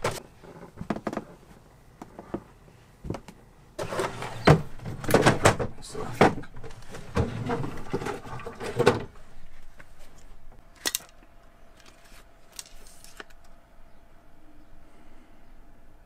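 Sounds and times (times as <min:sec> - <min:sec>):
objects rustling and clattering in drawer: 0:03.8 - 0:10.3.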